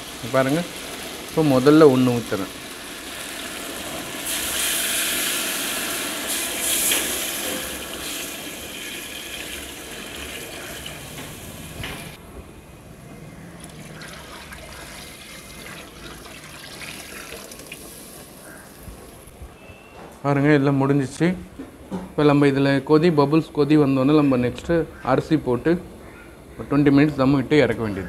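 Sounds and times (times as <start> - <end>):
water pouring into a pot: 0.0 - 12.2, 13.7 - 18.4.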